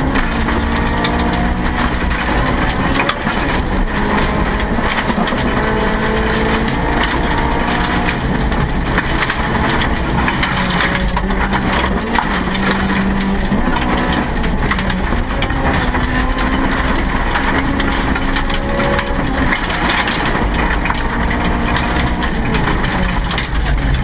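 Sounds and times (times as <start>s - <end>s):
car engine revving: 0.0s - 24.0s
car shell rattling: 0.0s - 24.0s
gravel pelting underbody: 0.0s - 24.0s.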